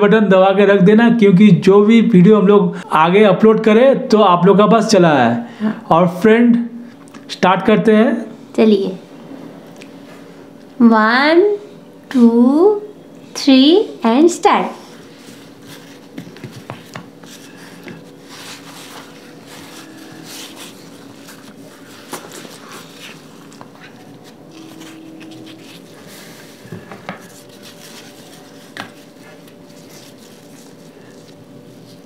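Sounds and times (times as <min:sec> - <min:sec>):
faint steady hum: 0:00.0 - 0:32.0
hands tearing flatbread: 0:27.2 - 0:32.0.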